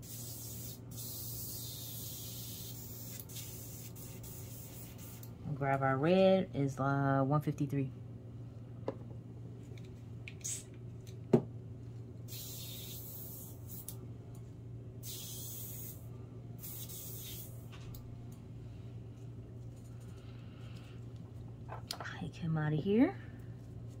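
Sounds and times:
airbrush hissing sprays: 0.0 - 5.3, 12.3 - 14.0, 15.0 - 17.6
low steady hum: 0.1 - 24.0.

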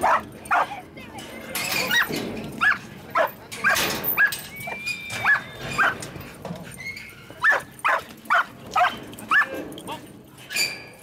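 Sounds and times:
dog barking: 0.0 - 0.7, 2.6 - 4.3, 5.2 - 6.0, 7.4 - 9.5.

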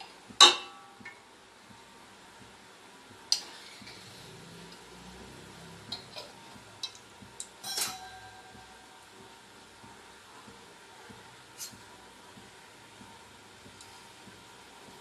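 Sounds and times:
metal utensils clinking on pot: 0.4 - 0.8, 7.6 - 8.5.

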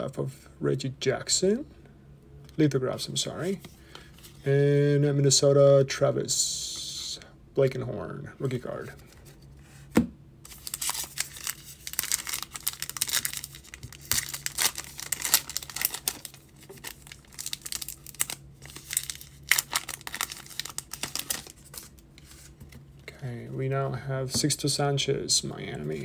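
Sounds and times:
foil wrapper tearing and crinkling: 10.5 - 22.0.

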